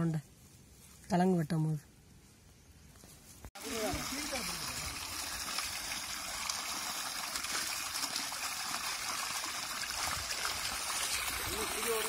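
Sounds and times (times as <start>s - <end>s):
hose water pouring into basin: 3.6s - 12.0s.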